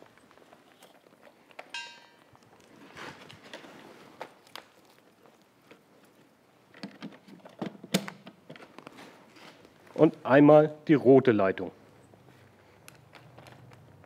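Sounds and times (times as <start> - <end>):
handling rustle: 0.0 - 6.4.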